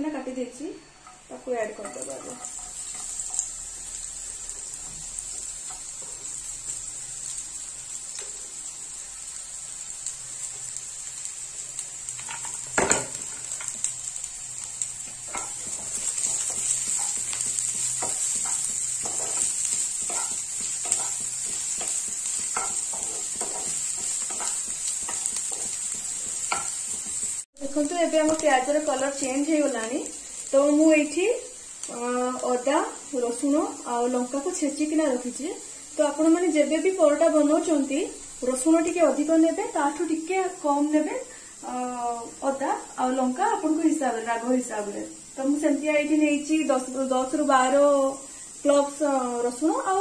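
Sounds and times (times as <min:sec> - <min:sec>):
onions sizzling in hot oil: 0:00.1 - 0:50.0
knock on frying pan: 0:12.8 - 0:13.2
wooden spatula scraping pan: 0:15.3 - 0:27.4.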